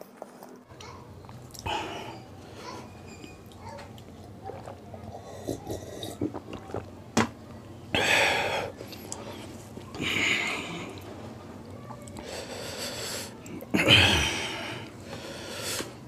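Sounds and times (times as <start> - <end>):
soft chewing: 0.0 - 7.8, 8.7 - 13.7.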